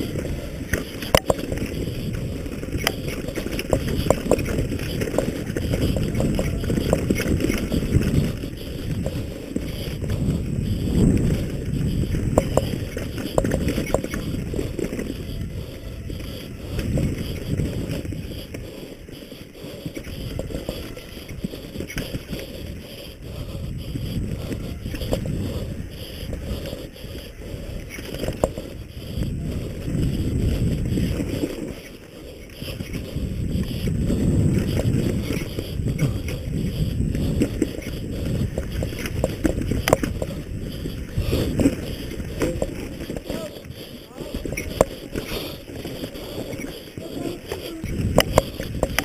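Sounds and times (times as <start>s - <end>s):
bike clattering and rattling: 0.0s - 49.0s
wind buffeting microphone: 0.0s - 49.0s.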